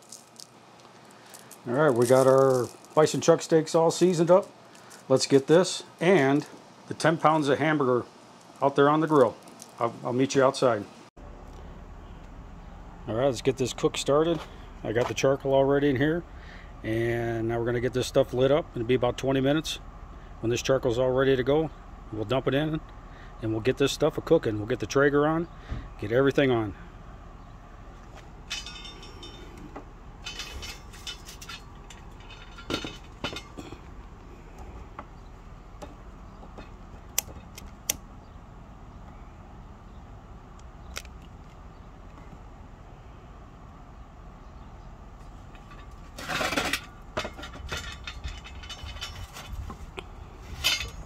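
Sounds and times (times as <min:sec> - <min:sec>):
metal chimney starter clanking: 0:28.0 - 0:37.6, 0:45.3 - 0:51.0
sheet steel and charcoal clinking: 0:28.0 - 0:38.0, 0:45.2 - 0:51.0.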